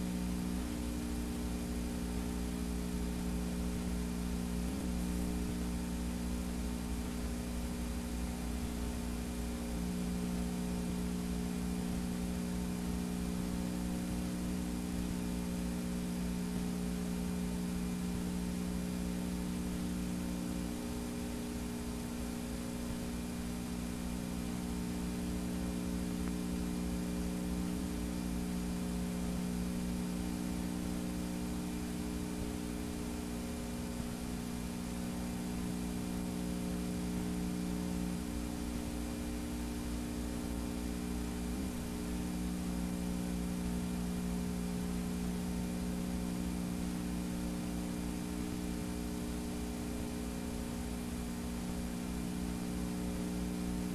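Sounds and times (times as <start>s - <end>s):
electrical mains hum: 0.0s - 53.9s
tape hiss: 0.0s - 53.9s.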